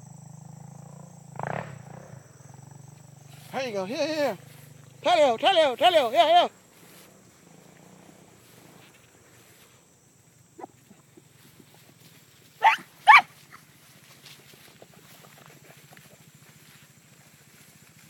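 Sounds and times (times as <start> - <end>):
dog barking: 12.6 - 13.3.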